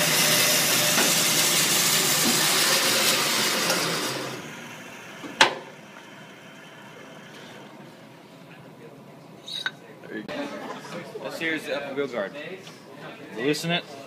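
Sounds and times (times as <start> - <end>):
band saw cutting wood: 0.0 - 4.7.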